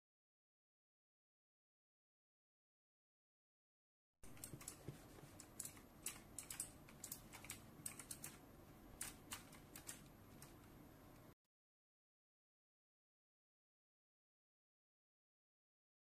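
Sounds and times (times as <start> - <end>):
mouse buttons clicking: 4.3 - 8.4, 9.0 - 11.3
low hiss: 4.3 - 11.4.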